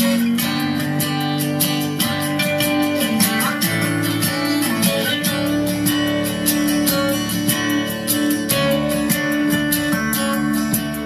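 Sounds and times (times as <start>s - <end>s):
song with strummed guitar over speaker: 0.0s - 11.0s.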